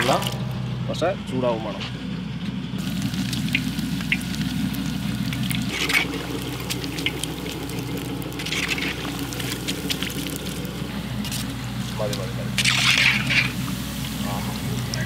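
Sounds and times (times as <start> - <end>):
low rumble: 2.0 - 15.0
oil bubbling and sizzling: 2.8 - 15.0
skimmer scraping metal pan: 12.5 - 14.3.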